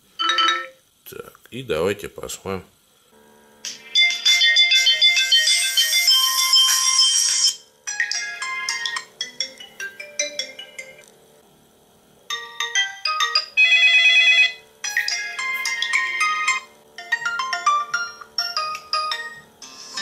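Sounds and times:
electronic ringtone melodies: 0:00.2 - 0:00.8, 0:03.8 - 0:11.0, 0:12.3 - 0:20.0.

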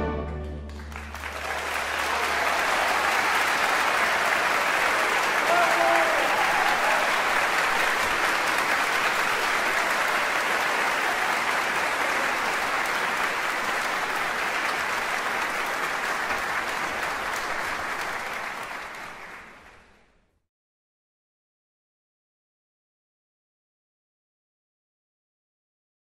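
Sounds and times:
audience applauding: 0:00.7 - 0:20.2.

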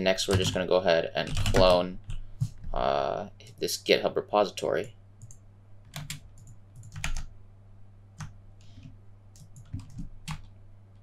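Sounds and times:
faint low hum: 0:00.0 - 0:11.0
keyboard keystrokes: 0:05.2 - 0:07.3, 0:09.4 - 0:10.5.

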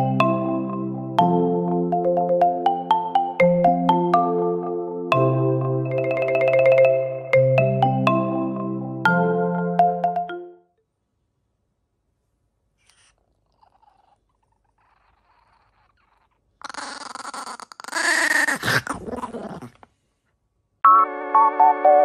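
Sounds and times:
marimba music: 0:00.0 - 0:10.6
small dog growling: 0:12.8 - 0:20.0.

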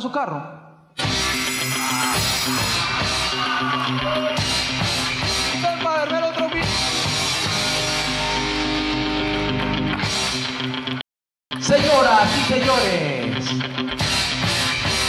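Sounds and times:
loud rock music: 0:01.0 - 0:15.0.

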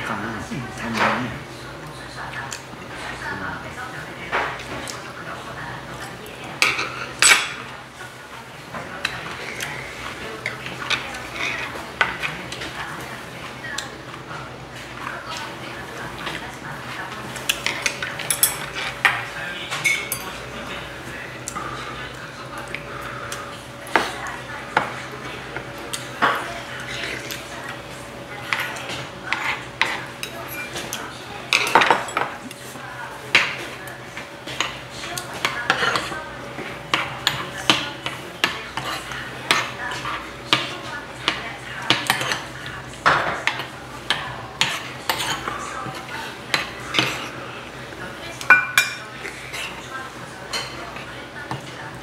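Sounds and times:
metal spoons clinking on bowls: 0:17.5 - 0:20.4, 0:28.5 - 0:32.4, 0:43.1 - 0:47.3, 0:48.4 - 0:49.6.

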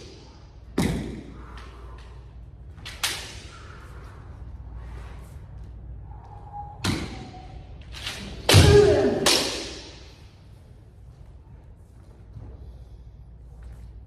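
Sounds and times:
bamboo swords striking: 0:06.8 - 0:07.4, 0:08.0 - 0:10.2
person shouting: 0:08.5 - 0:09.5.

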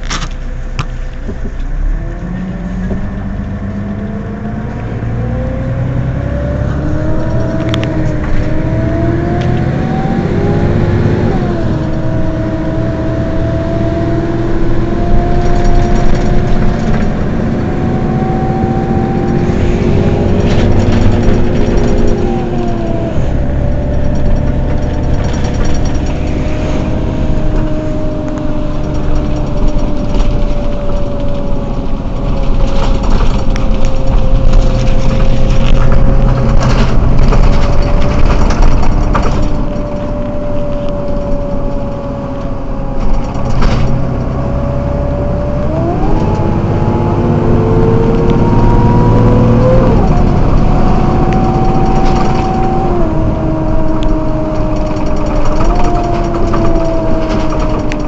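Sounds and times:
rising whine: 0:00.0 - 0:58.0
bus engine idling: 0:14.6 - 0:45.6.

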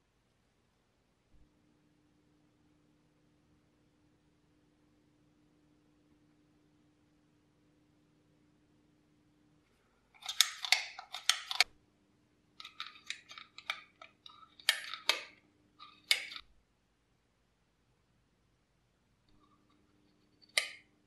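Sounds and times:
metal syringe clicking and rattling: 0:10.2 - 0:11.7, 0:12.6 - 0:16.5.

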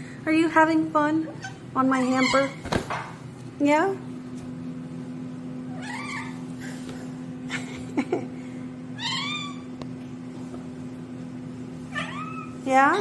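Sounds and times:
steady low hum: 0:00.0 - 0:13.0
cat meowing: 0:05.7 - 0:06.4, 0:11.9 - 0:12.6.

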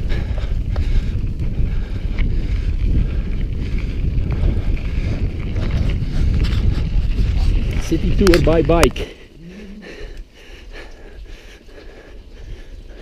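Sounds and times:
bike rattles on stones: 0:00.0 - 0:09.0
wind rumble on microphone: 0:00.0 - 0:13.0.

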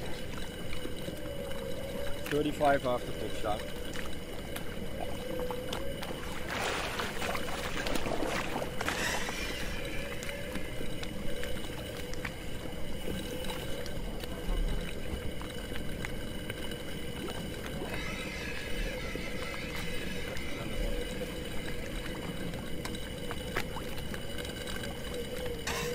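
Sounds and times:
steady low hum: 0:00.0 - 0:25.9
underwater air bubbling: 0:00.0 - 0:25.9.

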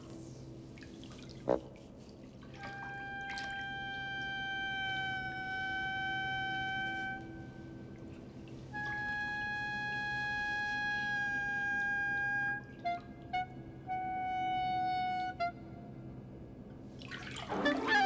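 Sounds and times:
solo woodwind long notes: 0:02.6 - 0:16.4, 0:17.5 - 0:18.0.

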